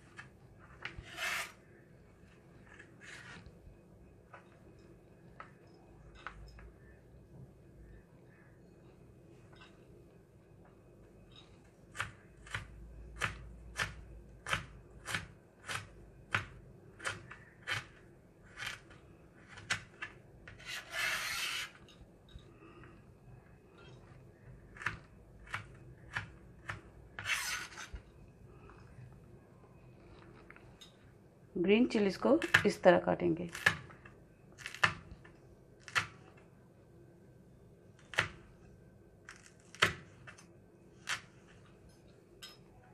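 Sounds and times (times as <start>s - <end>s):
knife scraping cutting board: 0.2s - 1.6s, 2.7s - 3.5s, 20.5s - 21.8s, 27.2s - 28.0s.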